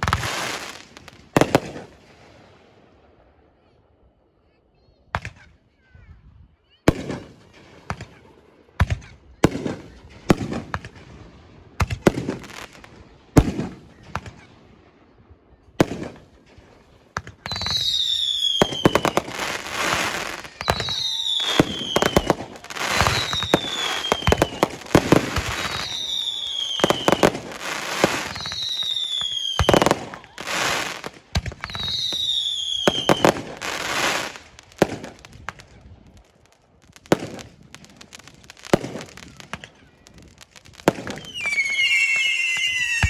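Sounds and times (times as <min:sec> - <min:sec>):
fireworks bangs and crackle: 0:00.0 - 0:03.4, 0:06.8 - 0:43.0
falling firework whistles: 0:17.4 - 0:35.8, 0:38.0 - 0:43.0.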